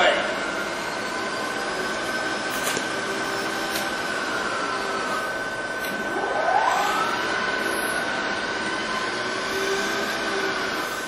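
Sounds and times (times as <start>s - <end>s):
machine hum with high whine: 0.0s - 11.0s
motor speeding up: 0.3s - 11.0s.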